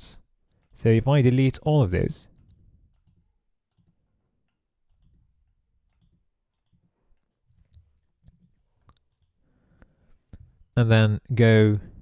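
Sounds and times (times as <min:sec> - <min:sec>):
computer keyboard and mouse clicks: 0:02.3 - 0:10.5.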